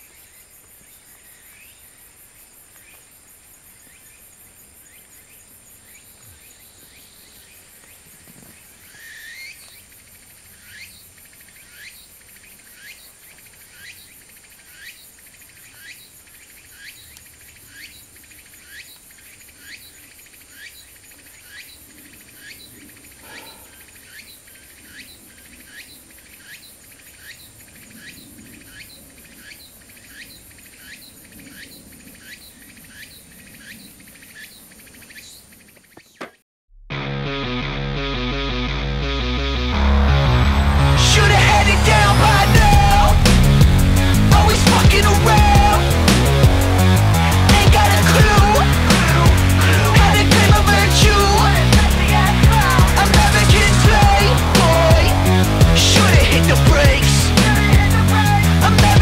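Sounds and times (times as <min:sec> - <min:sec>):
insects trilling: 0:00.0 - 0:36.2.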